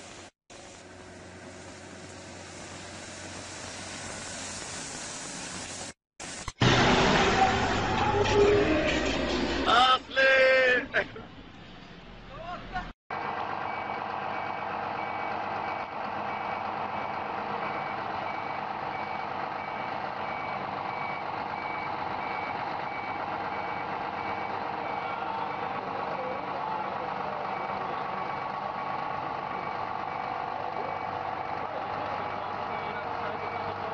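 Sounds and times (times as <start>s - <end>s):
diesel engine running: 13.1s - 33.9s
truck warning beeper: 13.6s - 33.9s.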